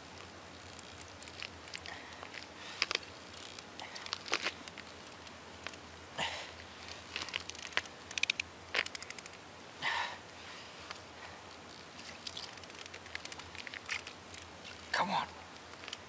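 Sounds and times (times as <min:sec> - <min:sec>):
fishing line clicks and rustles: 0:00.0 - 0:05.9, 0:06.6 - 0:09.4, 0:10.8 - 0:16.0
short breath: 0:09.8 - 0:11.4.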